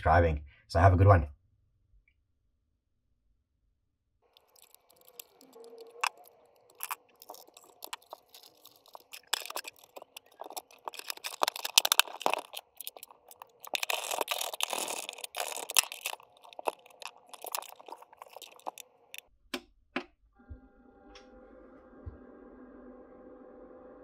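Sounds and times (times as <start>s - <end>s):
plastic parts clicking and knocking: 4.4s - 18.9s
plastic housing rustling: 4.4s - 19.2s.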